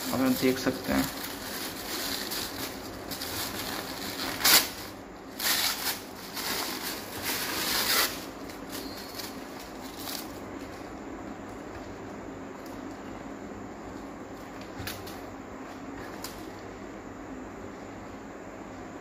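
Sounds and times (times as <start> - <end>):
plastic packaging crinkling: 0.0 - 11.0.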